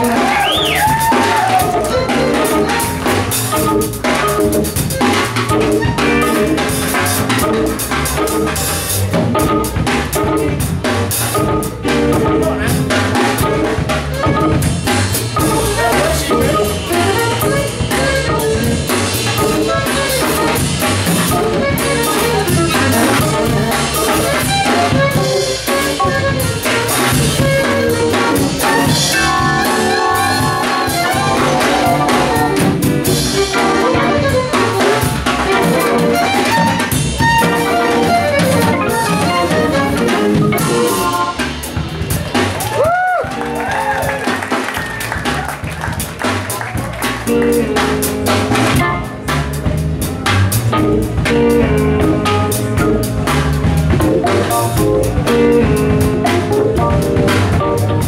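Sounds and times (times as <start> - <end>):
drum kit: 0.0 - 58.0
electric bass: 0.0 - 58.0
keyboards: 0.0 - 58.0
violin: 19.4 - 41.4.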